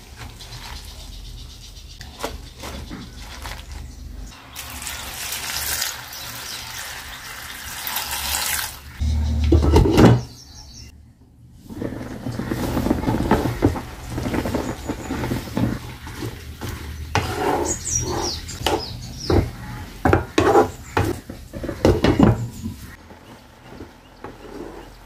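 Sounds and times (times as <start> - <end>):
wooden spatula scraping frying pan: 11.6 - 25.0.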